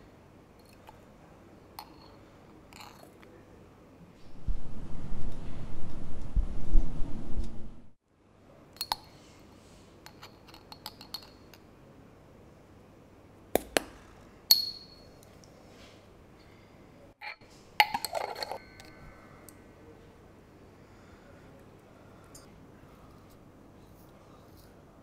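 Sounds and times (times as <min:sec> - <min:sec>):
glass jar clinking against metal pot: 0:10.1 - 0:11.6, 0:14.5 - 0:15.2, 0:17.2 - 0:19.0
metal pot ringing: 0:14.5 - 0:15.2.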